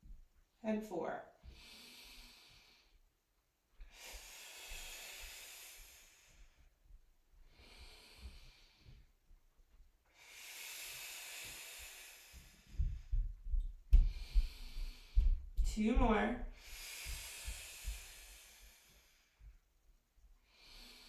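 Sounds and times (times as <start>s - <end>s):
woman breathing through mouth: 3.8s - 6.8s, 7.4s - 9.1s, 10.1s - 19.7s, 20.4s - 21.0s
low thuds on mat: 12.8s - 16.3s.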